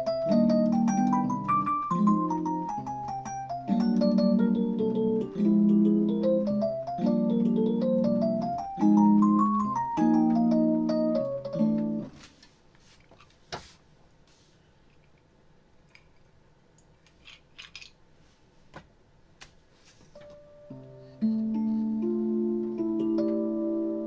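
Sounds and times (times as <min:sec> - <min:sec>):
digital piano jazz piece: 0:00.0 - 0:12.4, 0:20.1 - 0:24.0.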